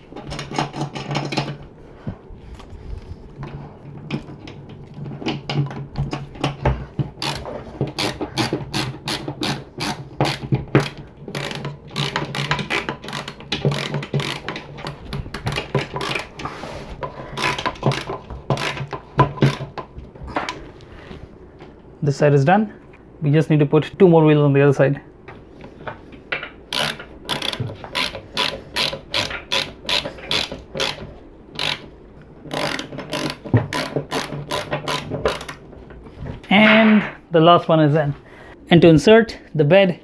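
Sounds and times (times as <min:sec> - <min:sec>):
screwdriver clicking: 0:26.7 - 0:31.9.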